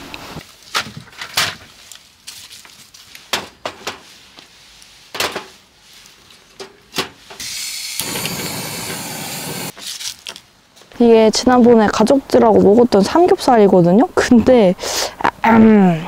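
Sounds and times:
steady hiss: 7.2 - 9.8.

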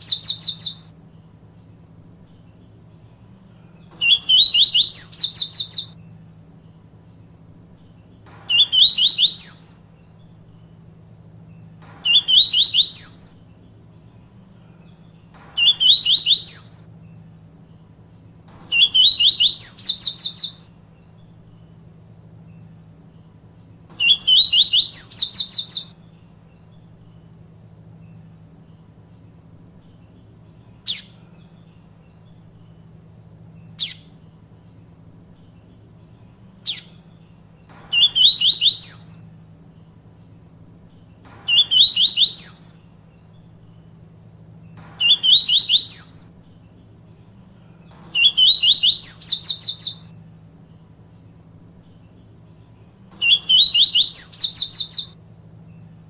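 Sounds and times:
bird singing high notes: 0.0 - 0.9, 2.4 - 6.0, 7.8 - 11.2, 12.0 - 13.4, 14.6 - 16.9, 18.7 - 22.3, 24.0 - 26.0, 37.9 - 39.2, 40.9 - 44.4, 45.0 - 46.3, 47.1 - 50.1, 51.8 - 55.4
faint low hum: 0.0 - 56.0.

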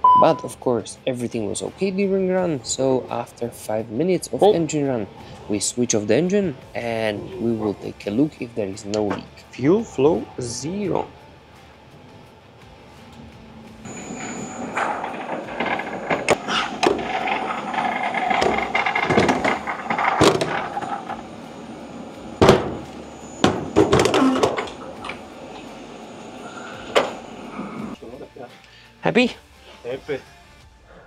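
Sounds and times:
steady mechanical hum: 1.0 - 28.0
sharp knocks and bangs: 13.9 - 21.5, 22.1 - 25.3.

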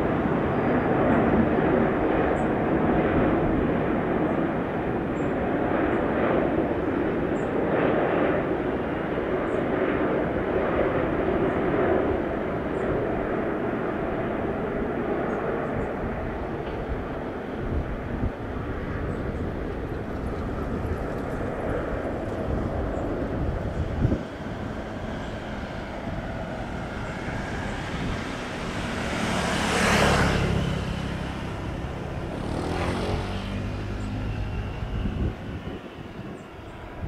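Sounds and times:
distant jet engines rumbling: 0.0 - 37.0.

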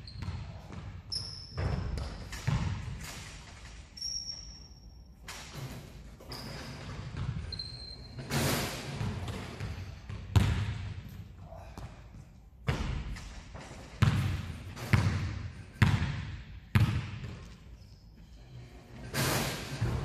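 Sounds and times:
shoe squeaks: 0.0 - 2.6, 3.6 - 10.1, 17.6 - 19.9
basketball bouncing on wooden floor: 0.1 - 3.0, 6.8 - 7.5, 9.0 - 11.9, 12.6 - 17.6.

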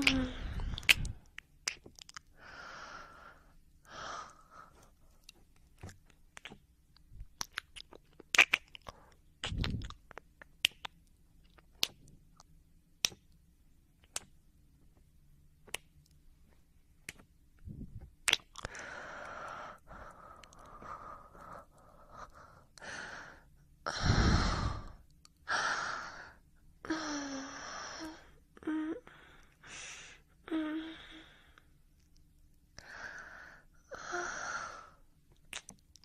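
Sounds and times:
mouth clicks and smacks: 0.0 - 2.4, 5.2 - 13.4, 14.0 - 14.4, 15.6 - 16.2, 17.0 - 18.9, 20.4 - 20.8, 35.3 - 36.0.

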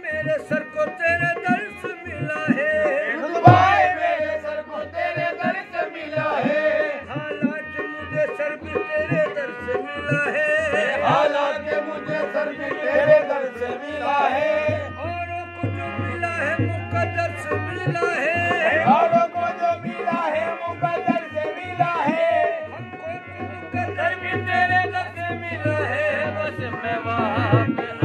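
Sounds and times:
harmonium melody: 0.0 - 28.0
men singing: 0.0 - 28.0
hand drum beat: 3.4 - 3.9.

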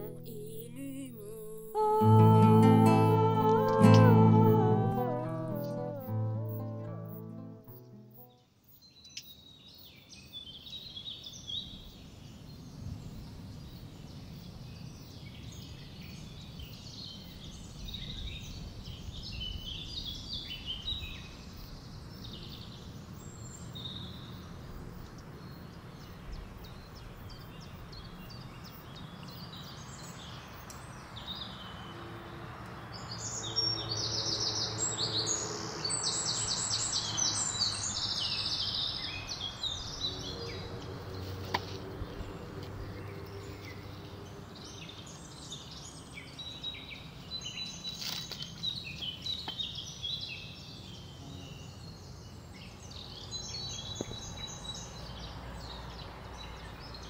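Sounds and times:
fast high-pitched trill: 0.0 - 8.3.

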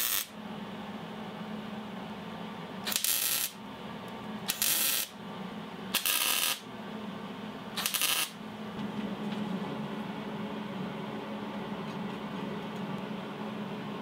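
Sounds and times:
welding crackling sizzle: 0.0 - 0.3, 2.9 - 3.6, 4.5 - 5.1, 5.9 - 6.6, 7.8 - 8.4
welder low hum: 0.0 - 14.0.

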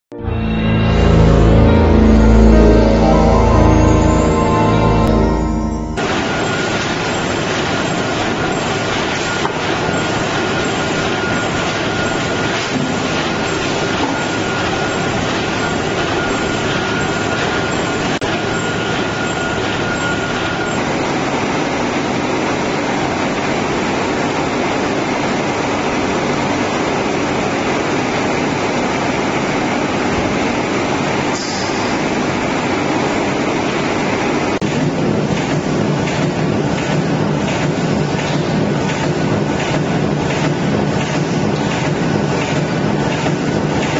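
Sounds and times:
faint high whine: 0.1 - 12.8
machinery running: 0.1 - 43.9.

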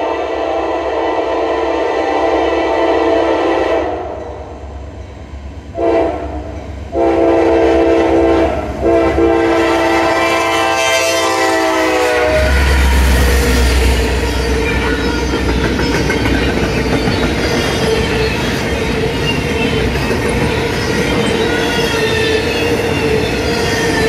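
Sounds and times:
locomotive air horn blasts: 0.0 - 4.2, 5.8 - 13.8
train wheels rolling: 10.2 - 24.0.

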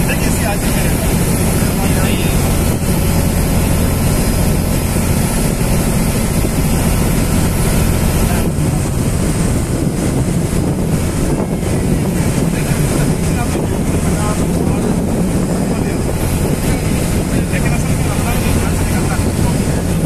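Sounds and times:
boat engine drone: 0.0 - 20.0
water rushing past hull: 0.0 - 20.0.

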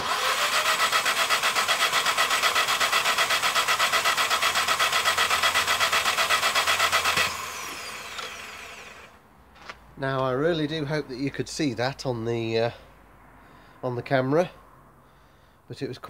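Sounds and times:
engine cranking without firing: 0.0 - 9.2
starter motor whine: 0.0 - 9.2.

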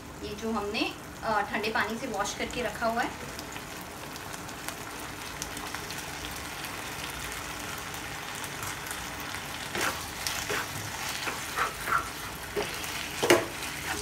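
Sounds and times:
pasta sizzling in a wok: 0.0 - 14.0
wooden spatula scraping: 9.7 - 14.0.

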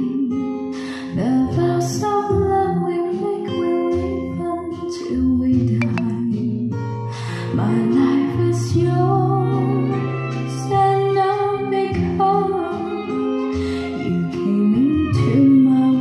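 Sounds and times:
guitar accompaniment: 0.0 - 16.0
woman singing: 0.0 - 16.0.

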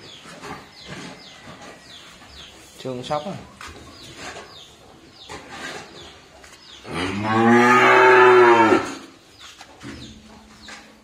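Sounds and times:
bull mooing: 6.9 - 9.0.

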